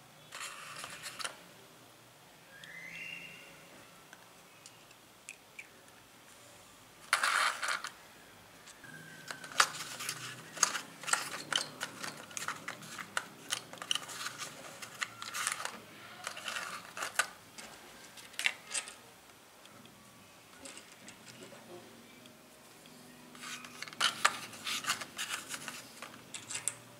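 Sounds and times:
porcelain pieces clinking: 23.4s - 26.8s.

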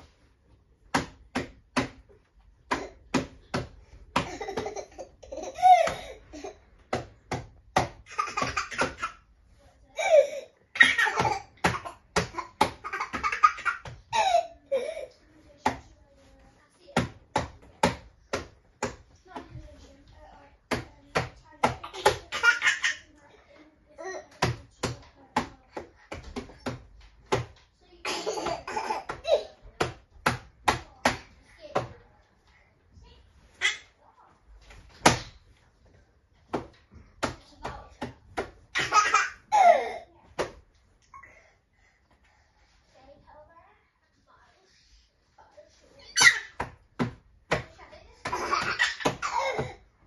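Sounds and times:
hand slapping plastic tray: 0.9s - 4.8s, 29.8s - 31.9s
child laughing: 4.2s - 6.6s.

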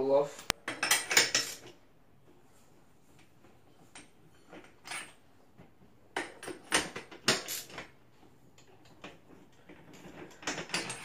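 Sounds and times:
metal clinks and rattles: 0.6s - 1.8s, 6.2s - 7.9s, 8.6s - 11.0s.

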